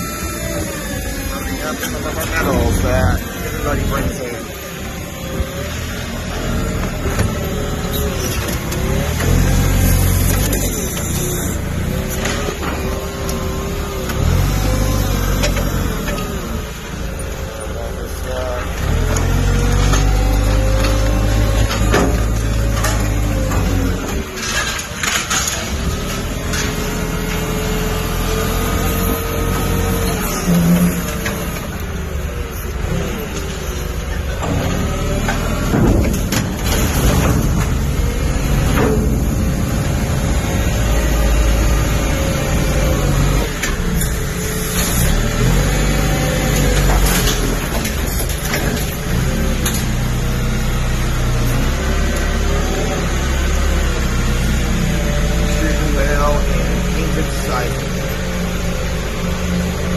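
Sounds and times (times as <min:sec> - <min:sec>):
engine revving: 0:00.0 - 0:59.9.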